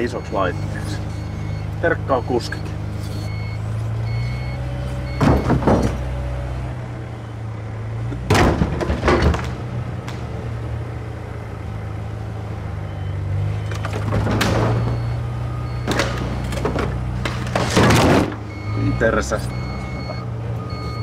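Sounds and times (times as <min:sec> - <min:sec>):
diesel engine running: 0:00.0 - 0:21.0
loud metal clanks and knocks: 0:05.2 - 0:06.1, 0:08.3 - 0:09.6, 0:15.9 - 0:18.4.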